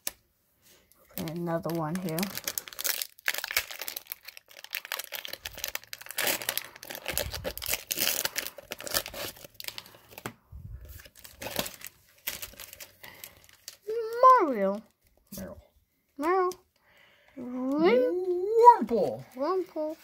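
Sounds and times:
foil wrapper crinkling and tearing: 0.9s - 15.2s.

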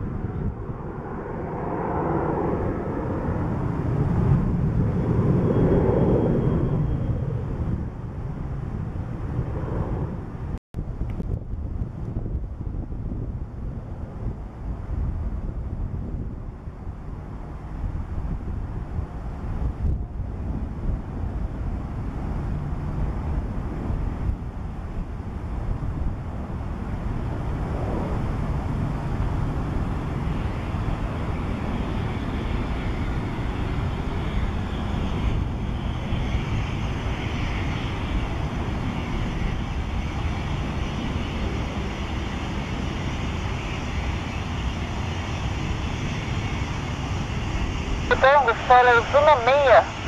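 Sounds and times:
jet hiss and rumble: 0.0s - 50.0s
high jet whine: 21.2s - 50.0s.

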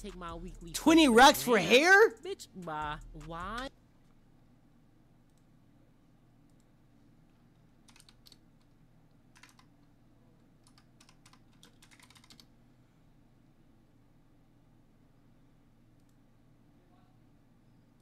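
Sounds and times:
faint low hum: 0.0s - 18.0s
keyboard typing: 7.8s - 9.9s, 10.6s - 12.5s.

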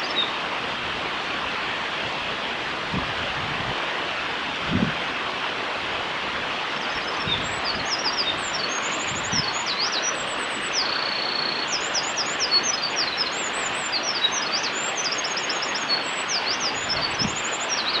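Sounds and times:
wren singing trills: 0.0s - 0.3s, 6.8s - 18.0s
stream water rushing: 0.0s - 18.0s.

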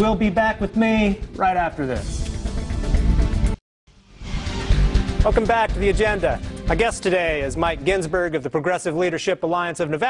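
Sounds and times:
band music with heavy low end: 0.5s - 8.0s.

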